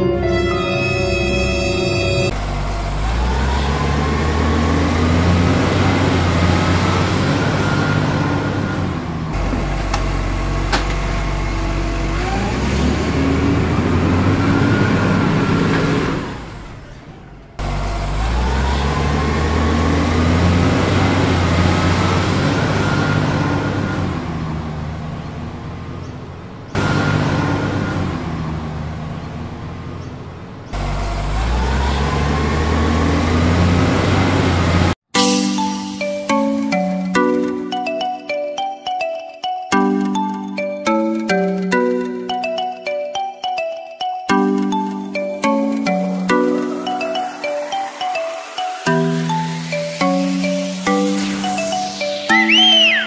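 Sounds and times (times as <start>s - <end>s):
heavy vehicle engine revving: 0.2s - 35.1s.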